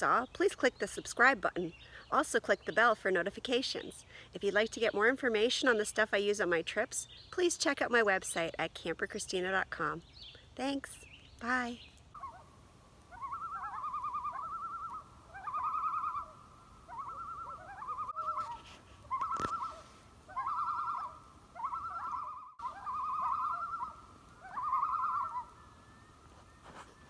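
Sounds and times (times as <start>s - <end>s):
loon tremolo calls: 11.0s - 27.0s.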